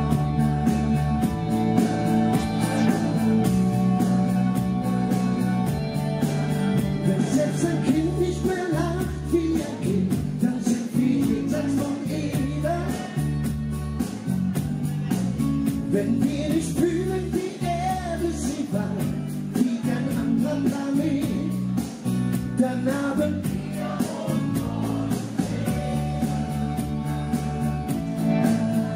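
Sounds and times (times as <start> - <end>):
backing music with steady bass: 0.0 - 28.9
man singing into microphone: 7.0 - 13.5, 15.9 - 21.7, 22.6 - 26.8.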